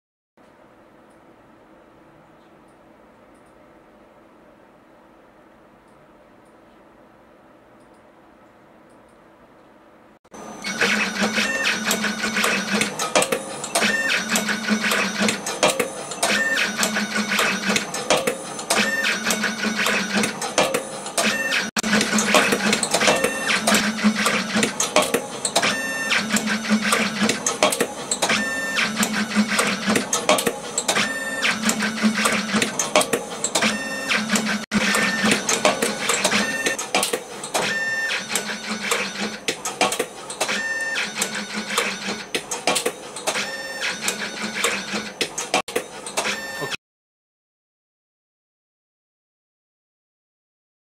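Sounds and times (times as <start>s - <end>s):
machine motor whines: 10.4s - 45.2s
rapid mechanical clicks: 10.8s - 43.4s.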